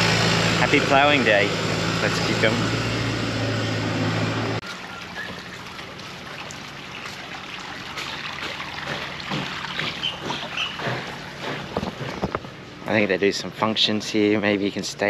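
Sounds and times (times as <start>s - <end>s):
low mechanical hum: 0.0s - 15.0s
small water splashes: 4.6s - 11.8s
pond water trickling: 4.6s - 12.2s.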